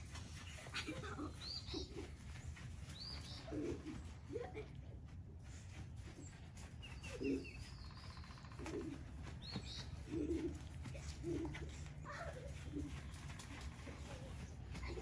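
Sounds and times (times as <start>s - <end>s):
high bird chirps: 6.8s - 8.7s.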